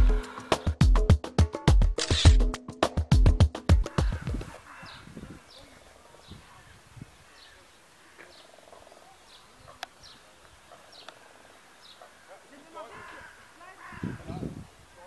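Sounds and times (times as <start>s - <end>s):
sharp click: 2.0s - 2.5s.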